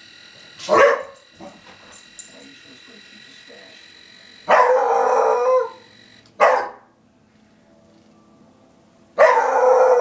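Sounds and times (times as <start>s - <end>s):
dog-like howl: 4.6s - 5.8s, 9.2s - 10.0s.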